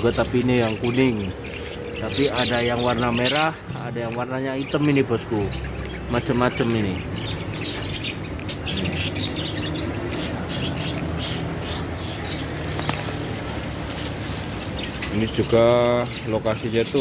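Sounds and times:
budgerigars chirping: 0.0 - 17.0.

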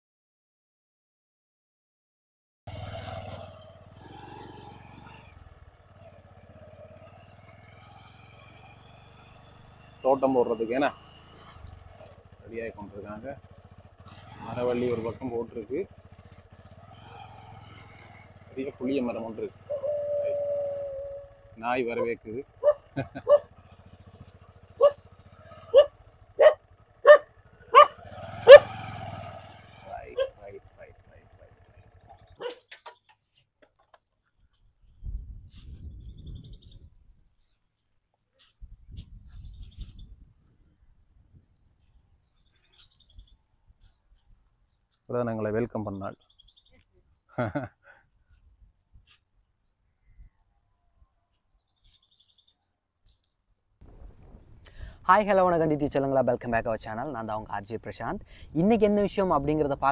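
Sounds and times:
engine running: 2.7 - 34.0, 53.8 - 59.9
dog barking: 22.6 - 23.5, 24.8 - 25.0, 25.7 - 28.8, 30.1 - 30.4, 32.4 - 32.6.

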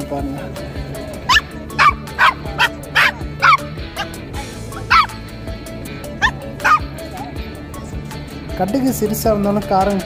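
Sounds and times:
small dog yapping: 1.3 - 4.1, 4.8 - 5.2, 6.2 - 7.3.

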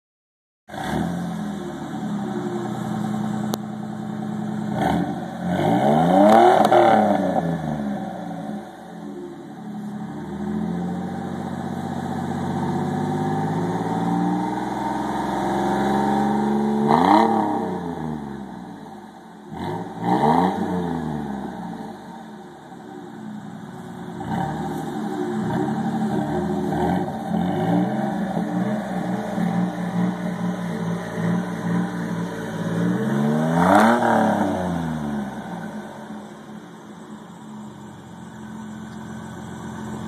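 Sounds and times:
truck engine revving: 0.7 - 9.0, 9.6 - 18.8, 19.5 - 40.0.

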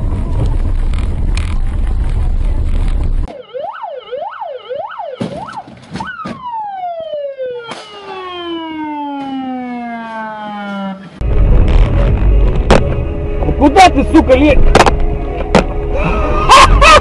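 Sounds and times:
road and engine rumble: 0.0 - 17.0
emergency vehicle siren wailing: 3.3 - 11.5.

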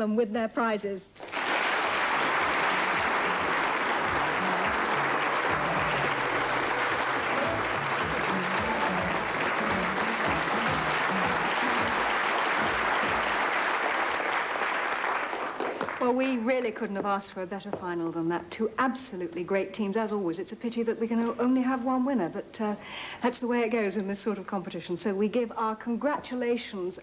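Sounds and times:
audience applauding: 1.2 - 16.2
faint music: 1.9 - 14.1.

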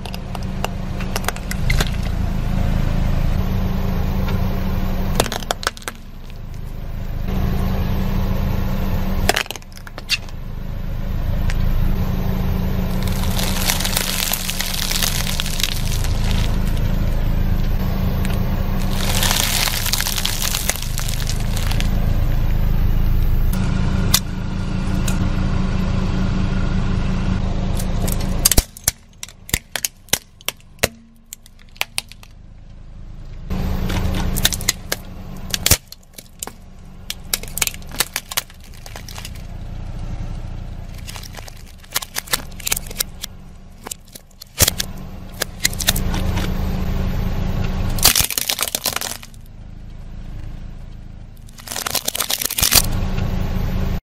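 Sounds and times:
car engine and tyre rumble: 0.0 - 54.0
plastic cracking under tyre: 5.2 - 6.6, 9.3 - 10.4, 12.9 - 16.9, 18.2 - 22.0, 27.8 - 32.4, 33.8 - 39.6, 40.9 - 46.5, 47.9 - 49.5, 51.4 - 52.9.

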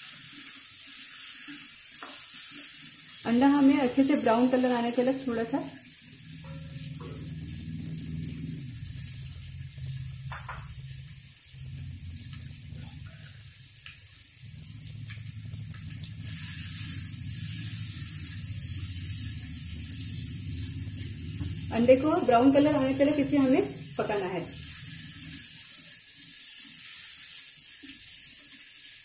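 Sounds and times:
eggs sizzling in hot oil: 0.0 - 29.0
low steady hum: 3.3 - 25.6.

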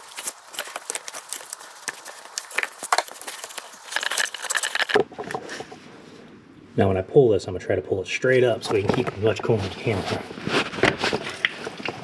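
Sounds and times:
metal and rubber clicks and scrapes: 0.0 - 5.8.

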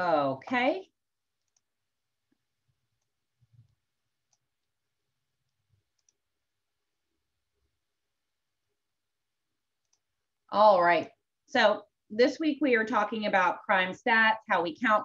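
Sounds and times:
soft clicks: 1.4 - 4.8, 5.4 - 6.3, 9.8 - 10.1.

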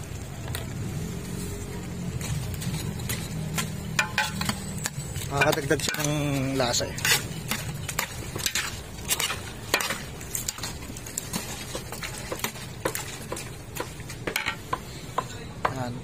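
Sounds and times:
food sizzling: 0.0 - 15.5
spoon scraping and clinking pot: 2.2 - 14.7.

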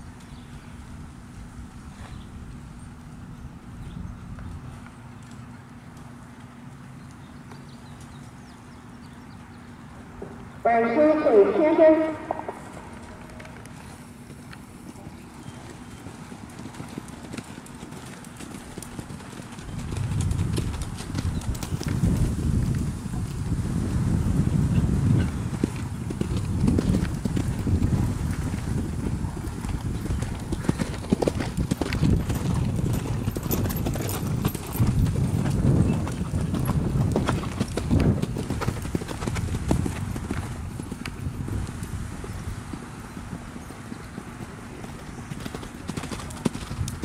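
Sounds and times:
horse hoofbeats on sand: 10.7 - 47.0.

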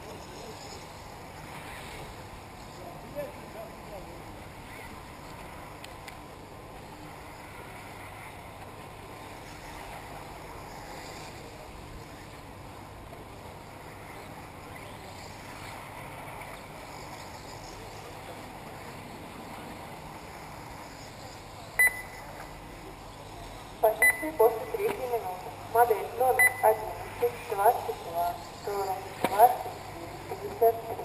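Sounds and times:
distant rc car motors whining: 0.0 - 12.5, 13.6 - 23.8
short loud beep: 21.8 - 22.2.

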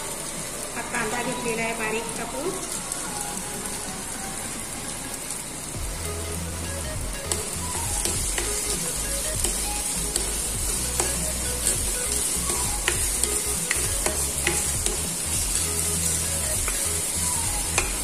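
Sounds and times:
onion frying in oil: 0.0 - 18.0
spatula stirring in wok: 7.2 - 18.0.

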